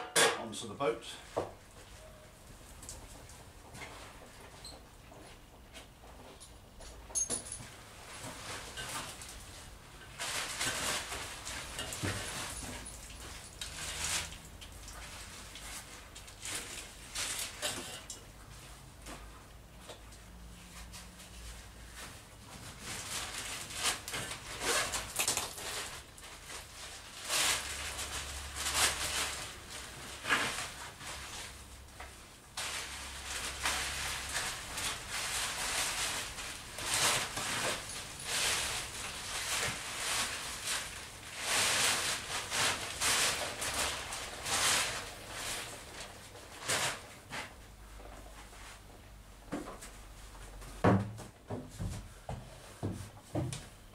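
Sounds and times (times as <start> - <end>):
wood rustling: 21.8 - 47.6.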